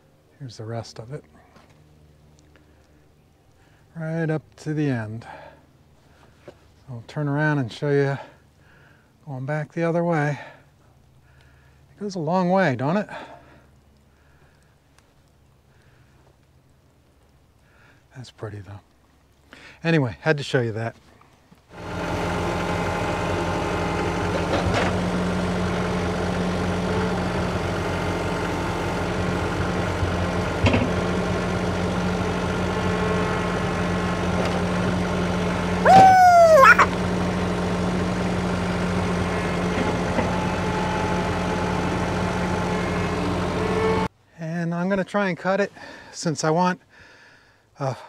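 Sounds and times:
sawmill engine idling: 21.8 - 35.8, 36.8 - 44.1.

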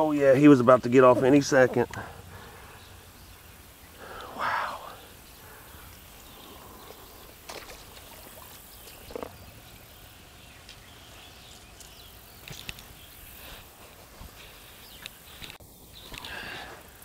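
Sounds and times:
faint outdoor hiss: 0.0 - 17.0
splashes in shallow water: 7.4 - 9.3.

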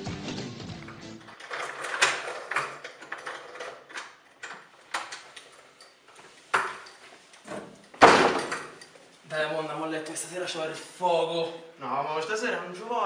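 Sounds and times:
loud thud: 8.0 - 8.6.

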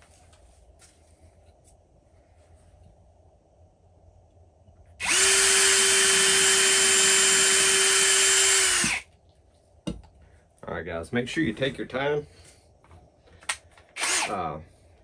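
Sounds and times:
cordless drill boring wood: 5.0 - 9.1, 14.0 - 14.4.

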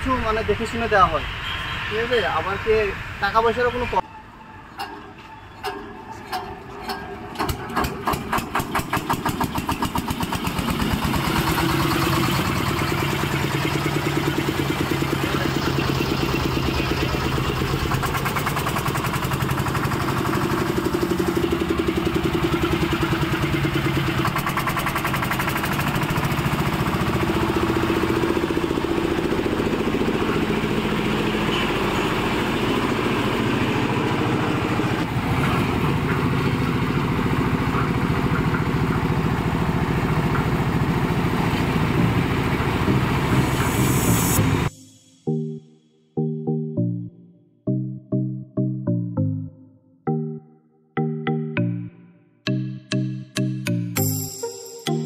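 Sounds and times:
diesel engine running: 4.7 - 45.0.

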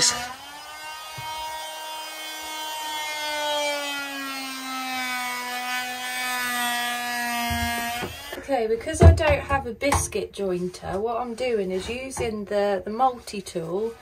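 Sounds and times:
oscillating multi-tool cutting wood: 0.0 - 8.4.

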